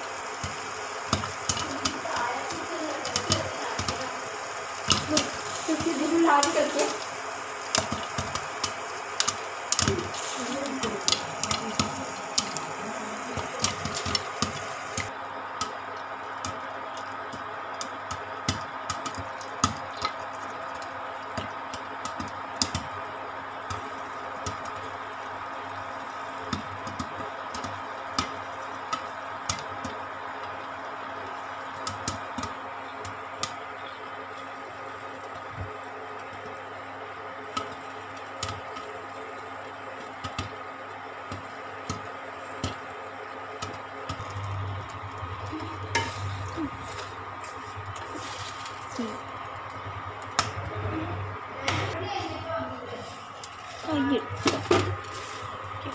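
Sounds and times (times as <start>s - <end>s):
popcorn popping in a covered pan: 0.0s - 55.9s
steady hum: 0.0s - 55.9s.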